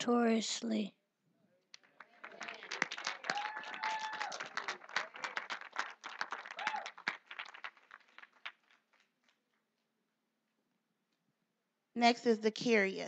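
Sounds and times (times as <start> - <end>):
audience applauding: 1.8 - 9.4.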